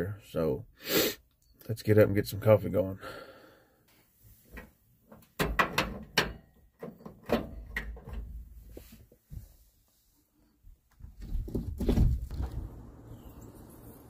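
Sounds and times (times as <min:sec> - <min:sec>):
knocks and clunks: 0:04.5 - 0:08.8, 0:10.9 - 0:13.0
person moving around: 0:08.5 - 0:13.0.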